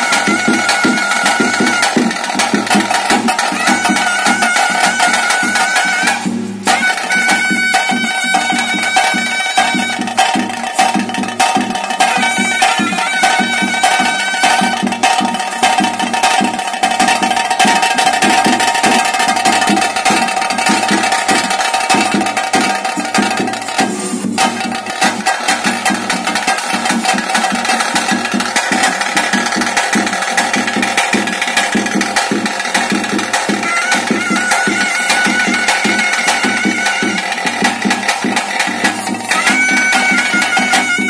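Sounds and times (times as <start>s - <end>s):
fast dense drumming: 0.0s - 41.0s
held pipe note: 33.6s - 37.6s, 39.2s - 41.0s.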